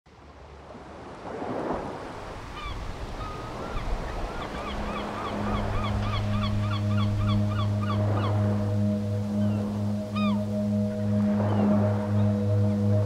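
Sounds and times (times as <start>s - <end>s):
surf: 0.1s - 13.0s
wind: 0.1s - 13.0s
seabirds calling: 2.4s - 13.0s
low hum: 4.8s - 13.0s.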